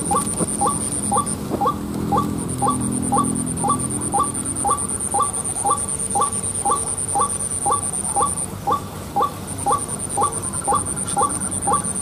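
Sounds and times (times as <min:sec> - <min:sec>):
high insect trill: 0:00.0 - 0:08.6
waterhen calling: 0:00.0 - 0:12.0.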